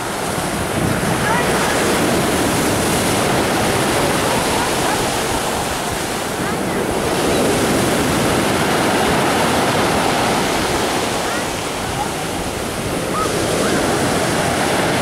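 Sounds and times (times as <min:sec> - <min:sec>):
surf breaking on pebble beach: 0:00.0 - 0:15.0.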